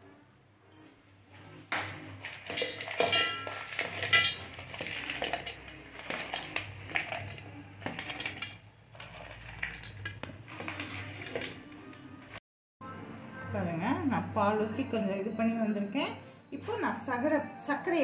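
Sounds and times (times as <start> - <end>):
biscuit pieces dropped in jar: 2.3 - 12.0
steel jar clinking and knocking: 2.4 - 8.6
metal jar ringing: 2.5 - 4.6.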